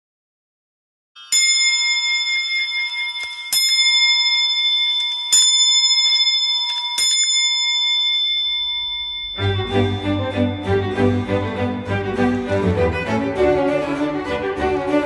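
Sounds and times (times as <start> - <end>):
clock bell strokes: 1.2 - 13.1.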